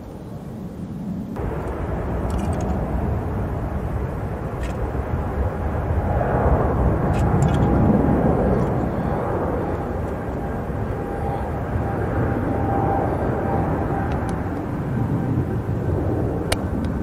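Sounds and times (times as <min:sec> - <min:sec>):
faint high whine: 0:00.0 - 0:17.0
jet engines rumbling: 0:00.0 - 0:17.0.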